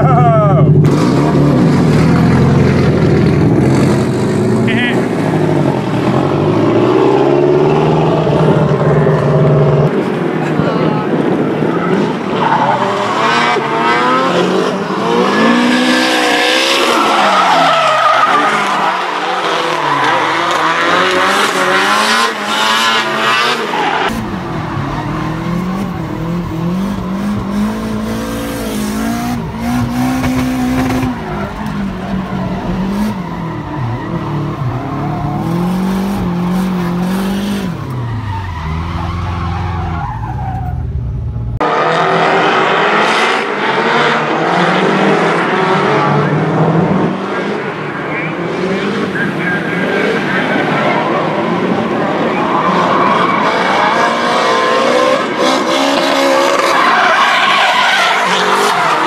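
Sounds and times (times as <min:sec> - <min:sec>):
car engines revving: 0:00.0 - 0:59.0
tyres squealing and skidding: 0:10.4 - 0:41.2, 0:47.6 - 0:59.0.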